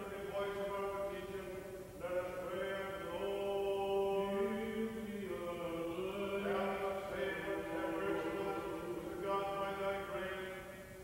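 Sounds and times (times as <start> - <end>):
person chanting long notes: 2.2 - 10.7.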